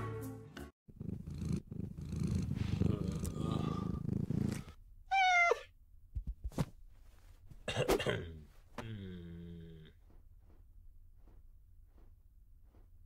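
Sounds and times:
cat purring: 0:00.9 - 0:04.8
cat meow: 0:05.1 - 0:05.7.

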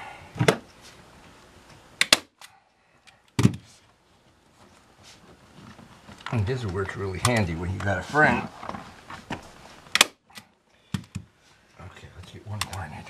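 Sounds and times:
staple gun firing: 0:02.0 - 0:02.5, 0:09.9 - 0:10.2.

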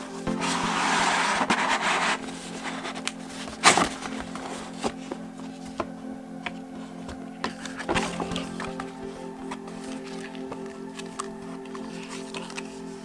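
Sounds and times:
cardboard sliding and rubbing: 0:00.2 - 0:05.9.

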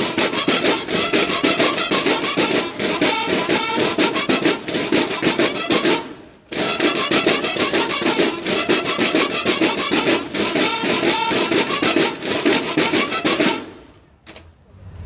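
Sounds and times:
marching snare drums: 0:00.0 - 0:13.9.

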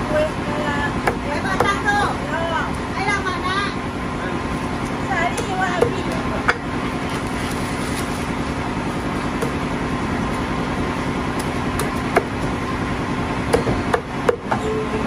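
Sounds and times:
cleaver chop on wooden block: 0:13.5 - 0:14.6.

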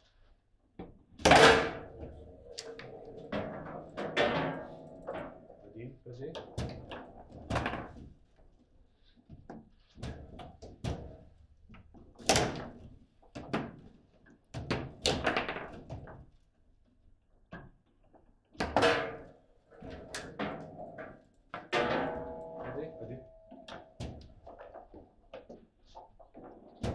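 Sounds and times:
ball hitting table walls: 0:00.8 - 0:05.6, 0:18.6 - 0:25.6
table football knocks and clacks: 0:14.5 - 0:16.3.

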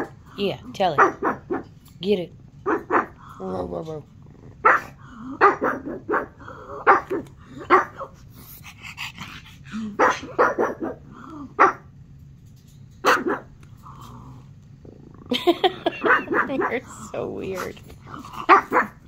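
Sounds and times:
dog barking: 0:00.9 - 0:01.7, 0:02.6 - 0:03.2, 0:04.6 - 0:08.1, 0:10.0 - 0:11.0, 0:11.6 - 0:11.9, 0:13.0 - 0:13.5, 0:15.9 - 0:16.8, 0:18.4 - 0:19.0.

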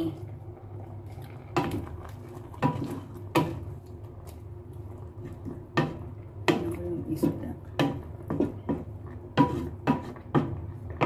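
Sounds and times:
steady low hum: 0:00.0 - 0:11.0
wooden spoon scraping metal pot: 0:01.2 - 0:03.8, 0:05.0 - 0:11.0.

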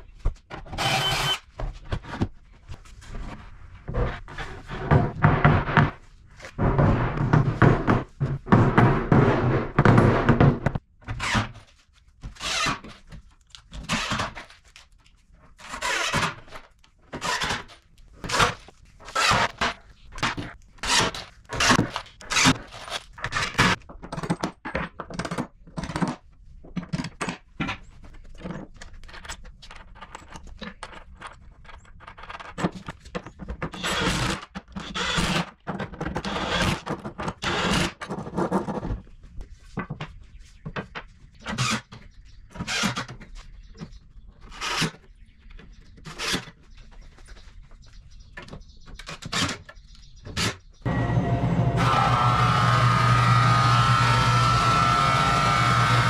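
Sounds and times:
wooden panels thunking and scraping: 0:00.2 - 0:14.7
cordless drill driving screws: 0:00.7 - 0:01.5, 0:50.9 - 0:56.0.

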